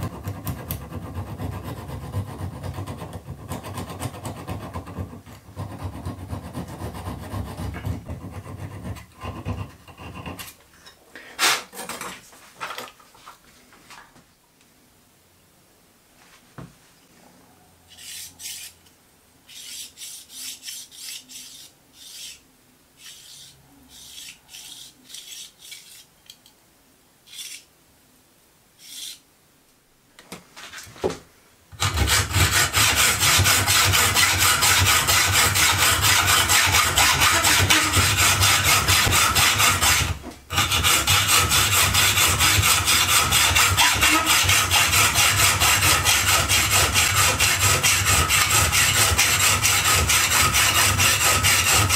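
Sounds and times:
hacksaw cutting metal: 17.9s - 18.8s, 19.5s - 22.4s, 23.0s - 26.1s, 27.3s - 27.7s, 31.8s - 51.9s
light scraping sounds: 30.4s - 31.2s.

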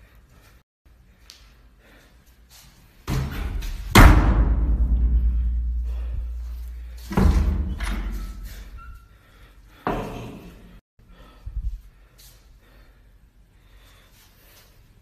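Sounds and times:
heavy thud: 3.1s - 8.2s
boom with low rumble: 3.6s - 7.8s.

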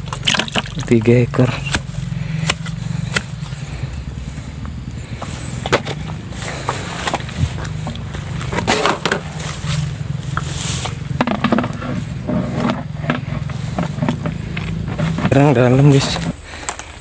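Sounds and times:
steady low rumble: 0.0s - 17.0s
footsteps through grass: 1.7s - 11.2s.

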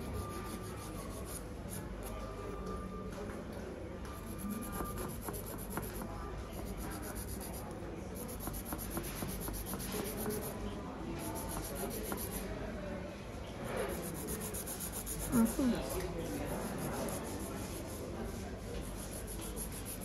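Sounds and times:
fingernails being filed: 4.2s - 6.0s, 6.6s - 10.5s, 11.2s - 12.4s, 13.9s - 18.1s, 18.9s - 20.0s.

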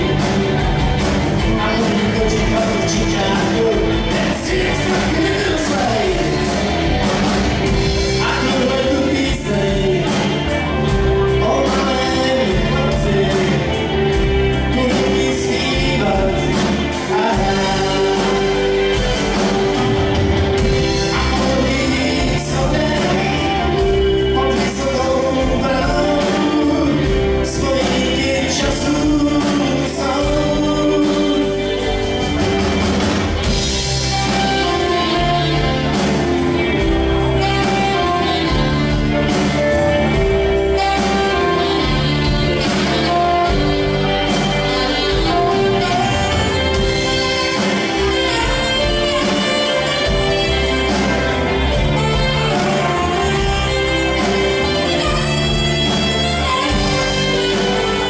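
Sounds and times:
bass guitar: 0.0s - 58.0s
drums: 0.0s - 58.0s
electric guitars: 0.0s - 58.0s.

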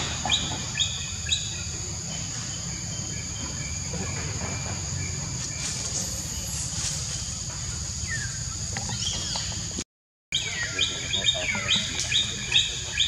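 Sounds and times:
forest hiss: 0.0s - 9.8s.

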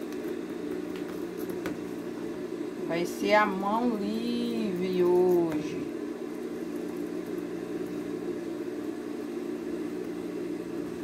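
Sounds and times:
steady mechanical hum: 0.0s - 11.0s.

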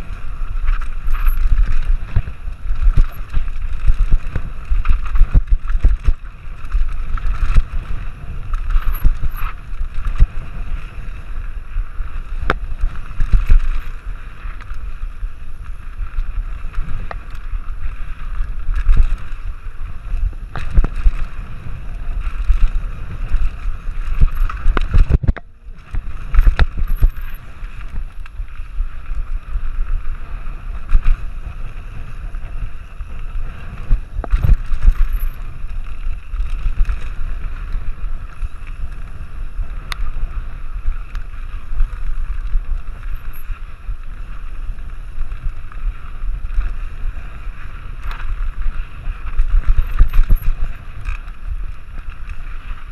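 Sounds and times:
bike tyres and frame rattling: 0.0s - 52.9s
wind buffeting microphone: 0.0s - 52.9s.

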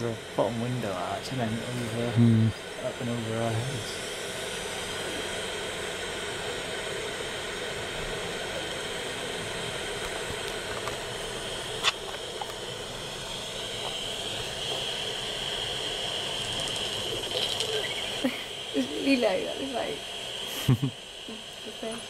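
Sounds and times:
steady background hiss: 0.0s - 22.0s.

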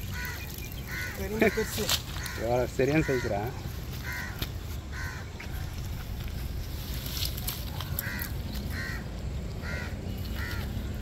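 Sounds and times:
steady low rumble: 0.0s - 11.0s
crow cawing: 0.1s - 5.6s, 7.8s - 10.8s.

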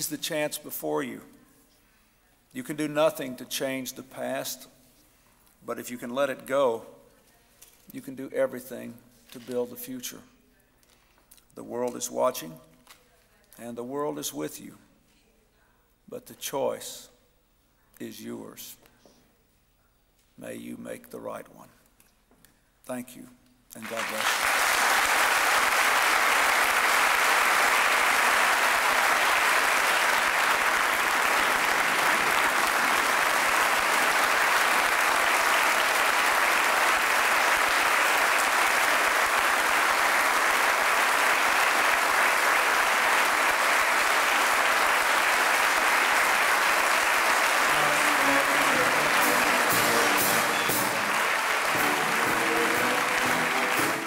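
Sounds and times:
audience applauding: 23.8s - 54.0s
orchestra playing: 47.2s - 54.0s.

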